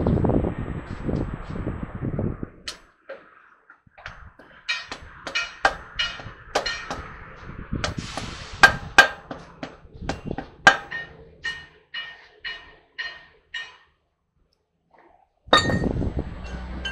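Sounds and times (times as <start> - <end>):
hammer ringing on steel wheel hub: 4.4 - 7.2, 8.6 - 13.9, 15.5 - 16.9
short hiss: 8.0 - 8.7.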